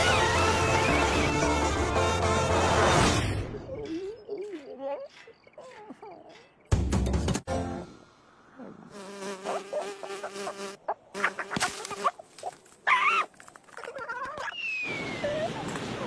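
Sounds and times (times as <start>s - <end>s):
insect-like buzz: 8.8s - 12.5s.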